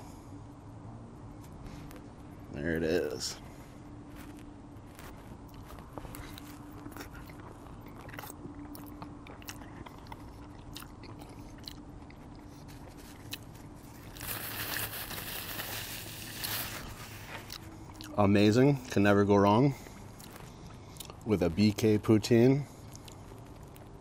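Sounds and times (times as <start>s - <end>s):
close chewing of food: 3.5s - 24.0s
paper napkin rustling: 12.7s - 17.5s.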